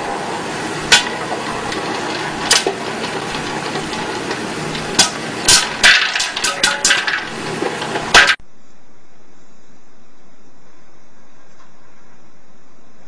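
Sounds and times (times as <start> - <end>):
popcorn popper hiss: 0.0 - 8.4
popcorn popping: 0.0 - 8.4.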